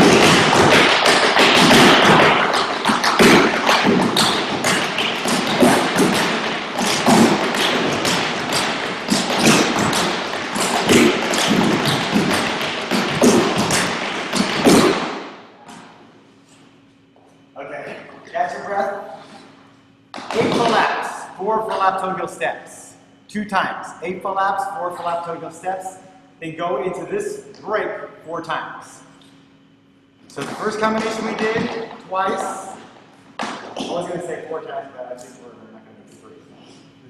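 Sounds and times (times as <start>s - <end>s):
tap shoes on wooden boards: 0.0s - 15.2s, 20.1s - 20.8s, 30.4s - 32.0s.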